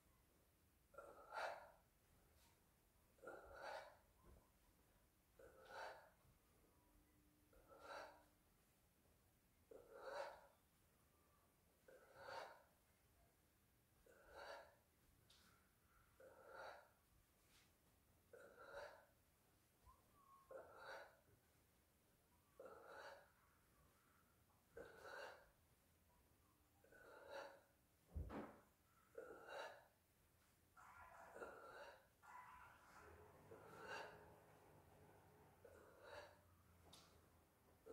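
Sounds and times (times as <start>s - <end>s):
man breathing: 35.6s - 37.1s.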